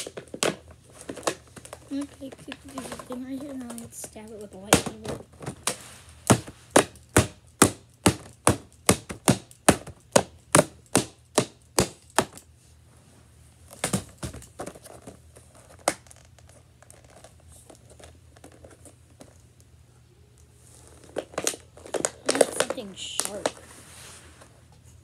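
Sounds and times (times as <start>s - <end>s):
plastic pack crinkling: 20.7s - 23.7s.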